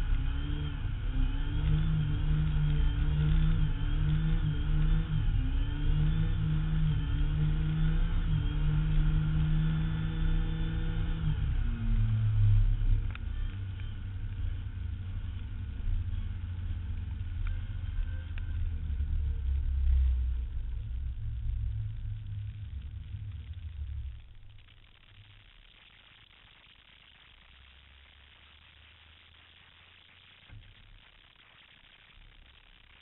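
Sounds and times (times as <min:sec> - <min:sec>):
vehicle engine rumbling: 0:00.0 - 0:25.6.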